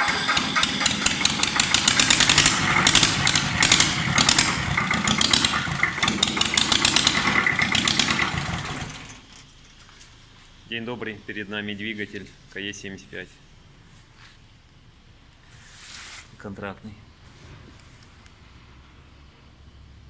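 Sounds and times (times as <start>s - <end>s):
diesel engine clattering: 0.0s - 10.1s.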